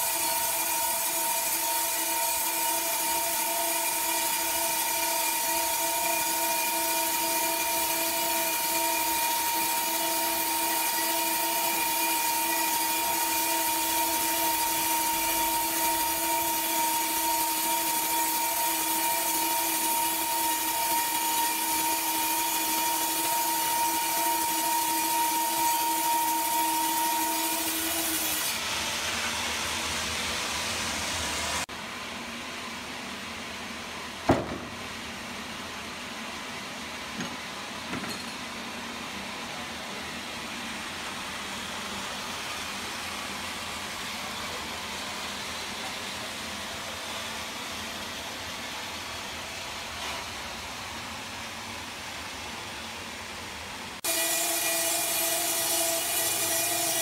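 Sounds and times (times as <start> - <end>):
band saw cutting log: 0.0 - 31.6, 54.0 - 57.0
saw whine: 0.0 - 31.7, 54.0 - 57.0.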